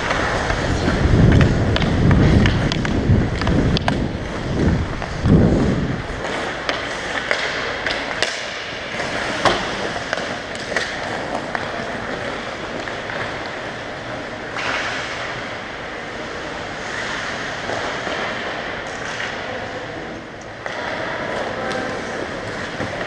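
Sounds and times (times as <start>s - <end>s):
wind rumble on camera: 0.0s - 6.2s
hockey sticks and puck clacks: 0.0s - 23.0s
skates scraping on ice: 0.0s - 23.0s.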